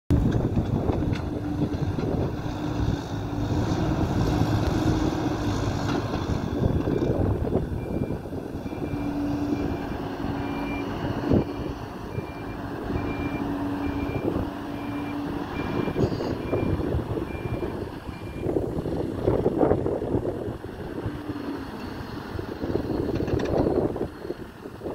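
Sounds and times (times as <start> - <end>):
diesel engine working under load: 0.1 - 24.9
reversing alarm beeping: 7.8 - 18.5.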